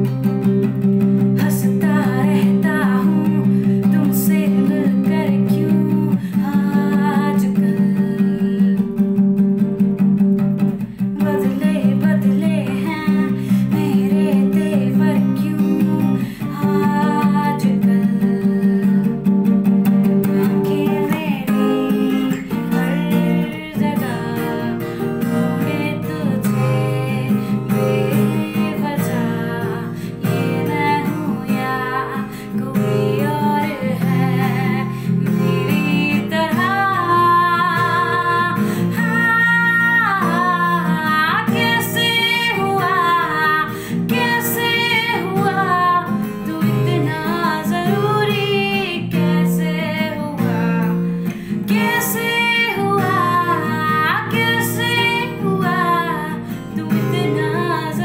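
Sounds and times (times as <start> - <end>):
woman singing: 0.0 - 9.9, 10.6 - 58.0
acoustic guitar strumming: 0.0 - 58.0.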